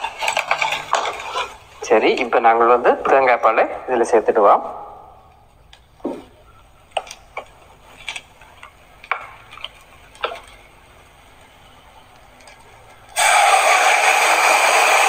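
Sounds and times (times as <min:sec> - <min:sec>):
leaves frying in hot oil: 0:07.6 - 0:15.0
liquid hissing in hot pan: 0:13.2 - 0:15.0.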